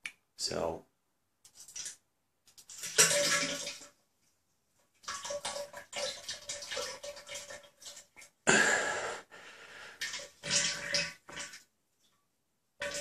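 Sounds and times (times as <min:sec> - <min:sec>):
diarrhea splashing into toilet water: 0:01.5 - 0:04.0, 0:05.0 - 0:09.0, 0:09.7 - 0:11.7, 0:12.8 - 0:13.0.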